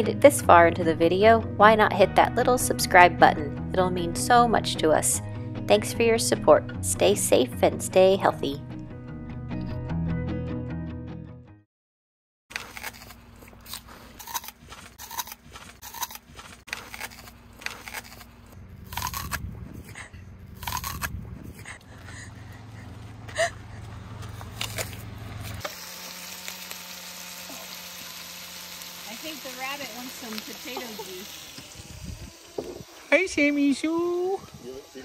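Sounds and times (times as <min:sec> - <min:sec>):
apple being bitten and chewed: 0:12.5 - 0:21.8, 0:24.2 - 0:29.0
vegetables sizzling in a pan: 0:25.6 - 0:32.5.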